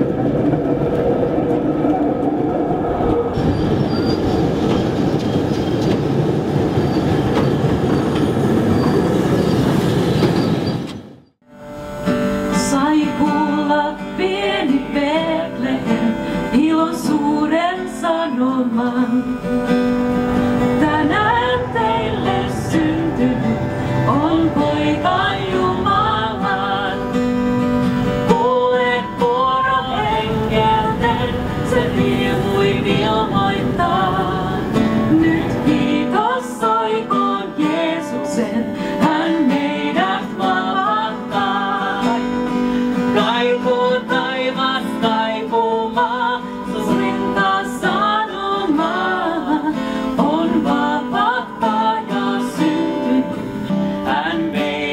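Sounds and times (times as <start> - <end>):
acoustic guitar playing: 11.4 - 54.9
person singing into a microphone: 12.6 - 19.6, 20.7 - 27.3, 28.2 - 54.9.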